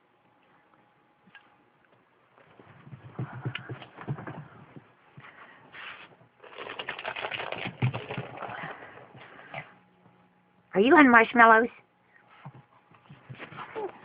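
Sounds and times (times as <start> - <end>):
dog scrabbling with toys: 5.8 - 9.3.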